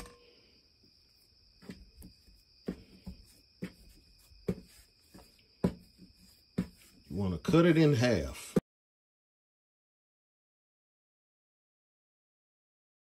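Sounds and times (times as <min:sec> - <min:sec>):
dough thudding on counter: 0:01.6 - 0:06.0.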